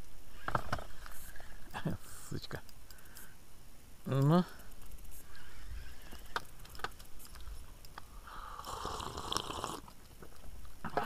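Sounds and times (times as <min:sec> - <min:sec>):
fishing reel whirring: 0:04.6 - 0:07.6.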